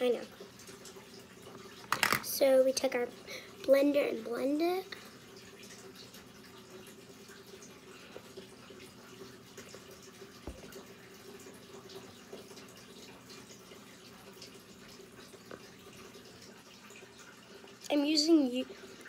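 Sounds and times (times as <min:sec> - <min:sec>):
water trickling from aquarium filter: 0:00.0 - 0:19.0
soft taps: 0:10.4 - 0:10.8.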